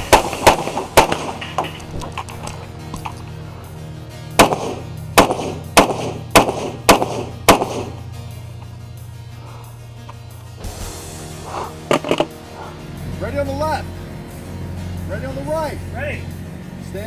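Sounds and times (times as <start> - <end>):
gunshots with ringing echo: 0.0 - 1.9, 4.3 - 8.0
background music: 0.0 - 17.0.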